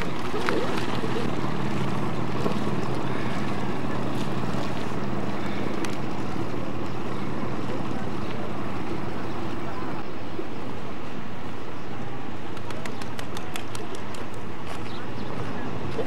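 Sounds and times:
boat engine droning: 0.0 - 12.6.

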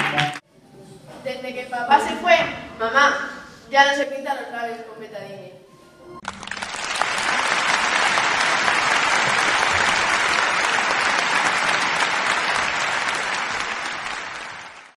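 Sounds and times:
audience applauding: 0.0 - 0.4, 6.2 - 15.0.

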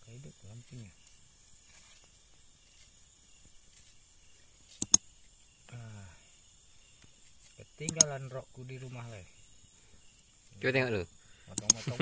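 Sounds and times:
night insects chirping: 0.0 - 12.0
sharp loud clicks: 4.8 - 5.0, 7.8 - 8.1, 11.5 - 11.9.

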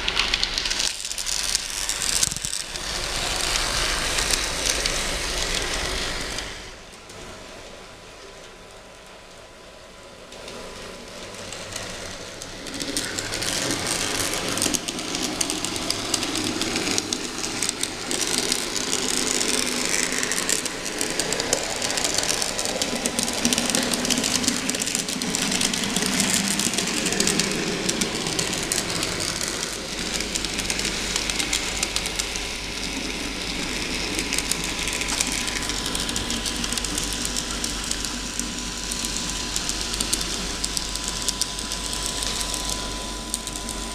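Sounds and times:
model tram motor whirring: 0.0 - 6.9, 10.3 - 43.9
wheels clicking over rail joints: 0.0 - 7.2, 10.3 - 43.9.

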